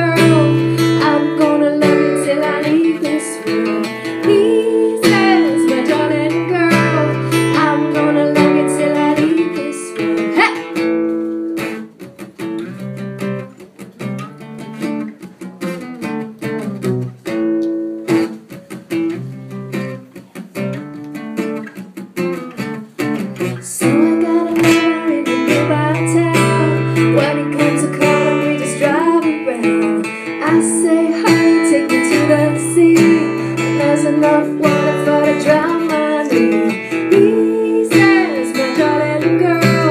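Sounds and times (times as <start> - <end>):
woman singing: 0.0 - 10.9, 23.6 - 39.9
strummed acoustic guitar: 0.0 - 39.9.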